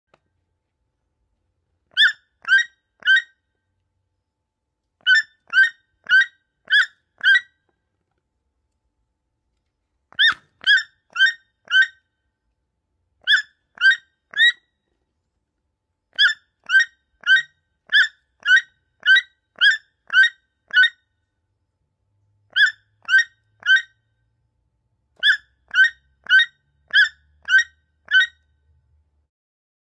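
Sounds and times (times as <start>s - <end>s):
toucan calling: 1.9s - 3.4s, 5.0s - 7.5s, 10.2s - 12.0s, 13.2s - 14.6s, 16.2s - 21.0s, 22.5s - 23.9s, 25.2s - 28.4s.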